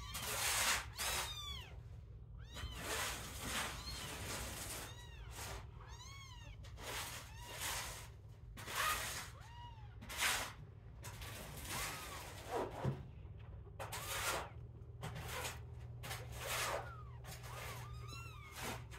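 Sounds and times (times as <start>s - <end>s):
kittens mewing: 0.0s - 10.2s, 15.2s - 18.9s.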